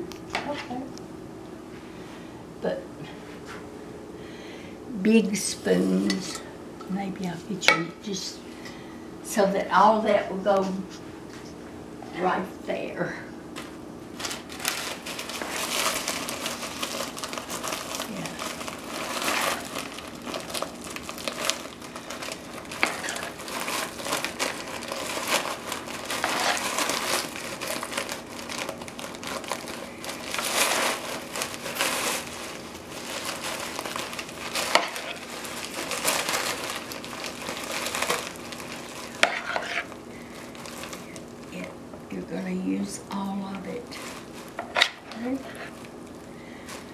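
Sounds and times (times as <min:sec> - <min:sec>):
plastic bag crinkling: 0:14.1 - 0:41.6, 0:43.1 - 0:46.9
spoon scraping plastic bowl: 0:39.2 - 0:39.9.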